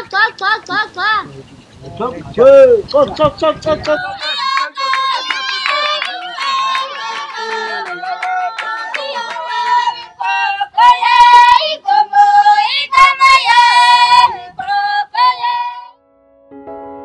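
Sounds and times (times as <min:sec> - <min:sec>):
sharp hand claps: 0:03.7 - 0:10.4
women singing a high chant: 0:03.9 - 0:15.9.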